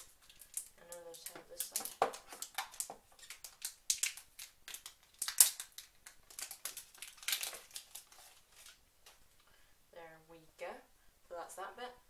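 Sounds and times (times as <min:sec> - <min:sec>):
plastic film crinkling: 0:00.0 - 0:09.2.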